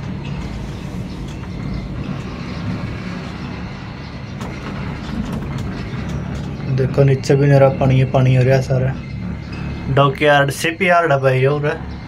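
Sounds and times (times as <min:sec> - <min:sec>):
cable car cabin rumble and hum: 0:00.0 - 0:12.0.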